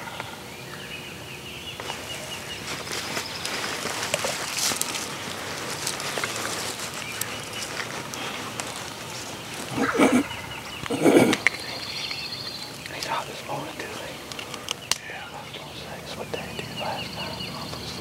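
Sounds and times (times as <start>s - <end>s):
small birds chirping: 0.0s - 18.0s
turkey gobbling: 9.6s - 12.1s.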